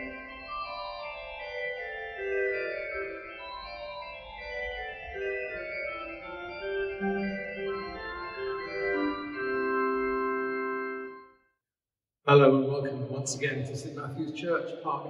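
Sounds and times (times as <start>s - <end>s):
organ playing sustained chords: 0.0s - 11.3s.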